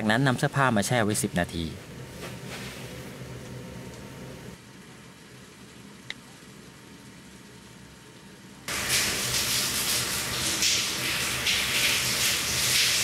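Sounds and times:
shower water spraying: 0:08.7 - 0:13.0.

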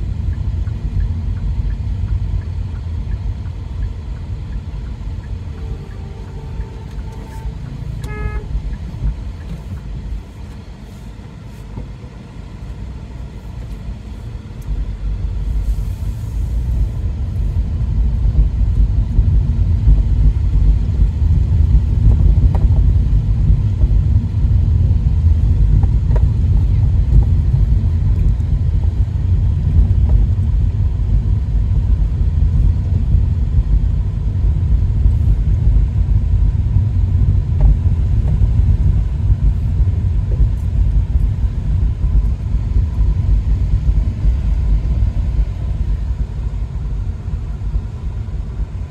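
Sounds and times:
low road rumble: 0:00.0 - 0:48.9
vehicle horn toots: 0:05.5 - 0:08.8.

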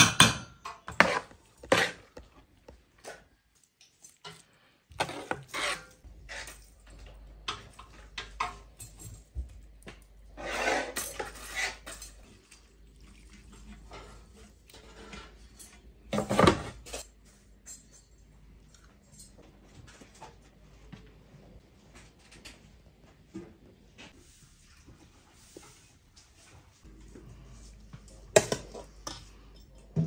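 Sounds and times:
metal spoon scraping steel pots: 0:00.6 - 0:02.4, 0:04.2 - 0:09.2, 0:10.3 - 0:12.2.

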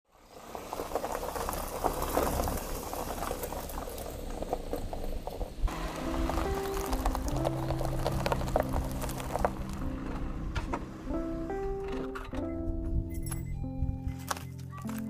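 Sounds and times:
music with held notes: 0:05.7 - 0:15.0.

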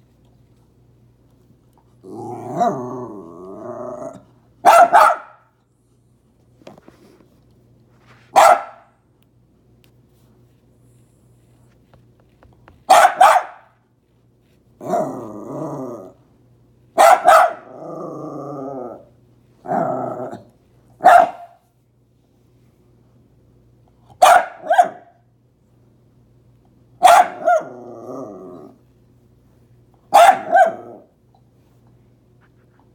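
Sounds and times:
dogs growling: 0:02.0 - 0:04.4, 0:14.8 - 0:16.2, 0:17.6 - 0:20.5, 0:27.4 - 0:28.8
dogs barking: 0:04.6 - 0:05.5, 0:08.4 - 0:08.9, 0:12.9 - 0:13.7, 0:17.0 - 0:17.8, 0:21.0 - 0:21.6, 0:24.2 - 0:25.2, 0:27.0 - 0:27.8, 0:30.1 - 0:31.1.

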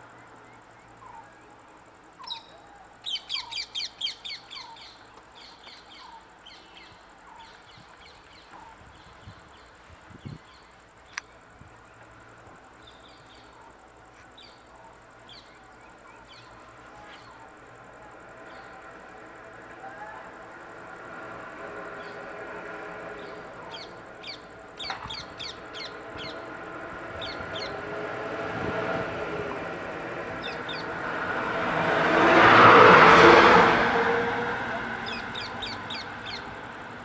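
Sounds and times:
birds chirping: 0:00.0 - 0:20.7, 0:23.1 - 0:27.9, 0:30.2 - 0:31.1, 0:34.6 - 0:36.9.

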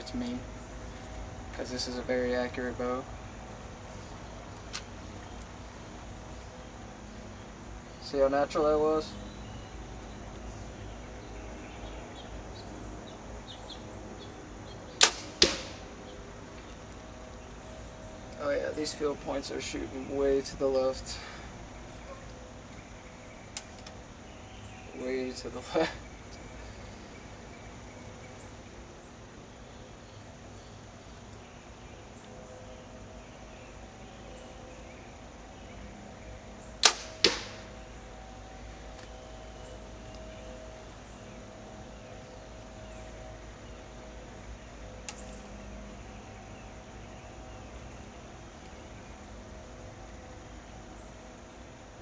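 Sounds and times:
bowstring snap: 0:15.0 - 0:15.8, 0:36.8 - 0:37.7
arrow hitting target: 0:15.0 - 0:15.9, 0:36.8 - 0:37.7
bow string crack: 0:15.0 - 0:15.9, 0:36.8 - 0:37.7, 0:45.0 - 0:45.4.

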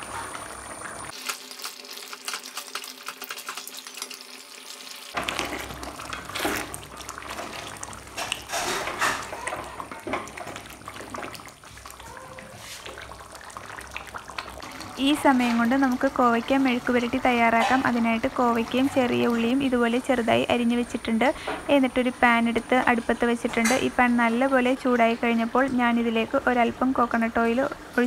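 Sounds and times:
curry bubbling and popping: 0:00.0 - 0:21.2.

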